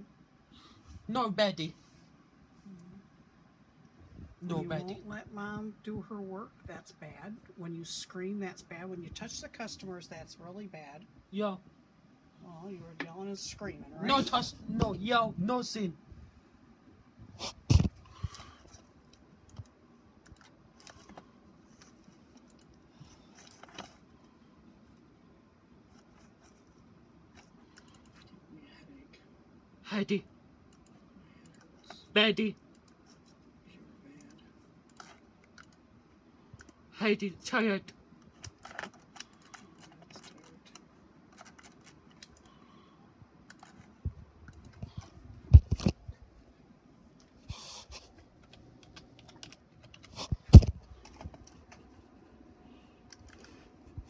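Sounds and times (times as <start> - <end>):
computer keyboard typing clicks: 19.5 - 21.2, 27.7 - 28.3, 38.3 - 42.6, 43.4 - 43.9, 48.4 - 51.8, 53.1 - 53.6
keyboard keys clicking: 48.4 - 50.1.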